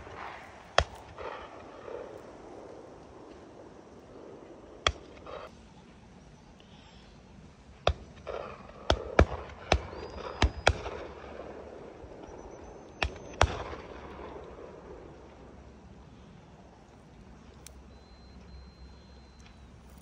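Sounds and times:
shotgun shots with echo: 0:00.0 - 0:02.6.

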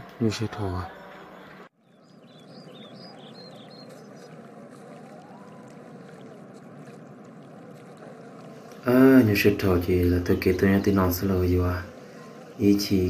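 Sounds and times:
stream water running: 0:00.0 - 0:13.0.

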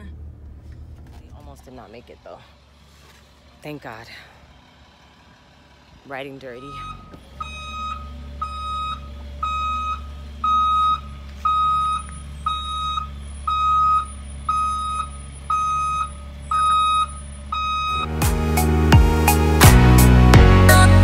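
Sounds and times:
bus engine running: 0:00.0 - 0:21.0
reversing alarm beeps: 0:06.5 - 0:18.1.

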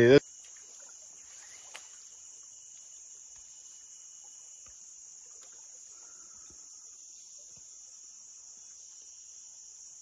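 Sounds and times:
insect chorus drone: 0:00.0 - 0:10.0.

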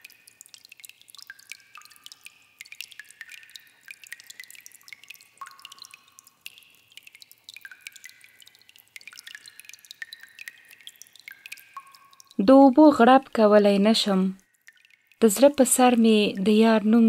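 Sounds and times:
water dripping with plinks: 0:00.0 - 0:17.0.

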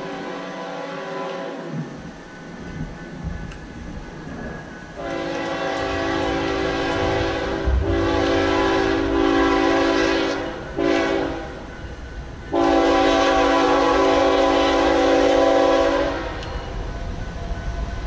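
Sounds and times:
locomotive air horn blasts: 0:00.0 - 0:01.6, 0:05.0 - 0:11.5, 0:12.5 - 0:16.4
passing train rumble: 0:00.0 - 0:18.0.

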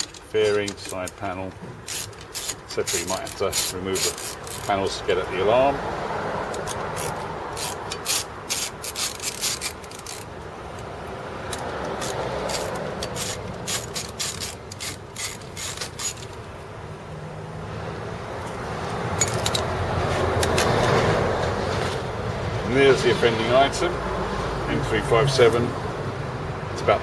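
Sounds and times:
socket ratchet clicking: 0:00.0 - 0:04.8, 0:06.5 - 0:16.4, 0:18.4 - 0:19.7.

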